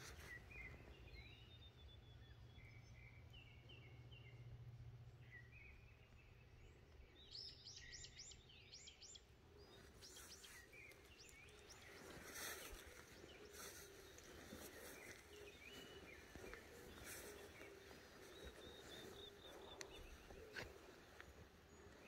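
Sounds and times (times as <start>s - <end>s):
faint bird chirps: 5.2s - 22.0s.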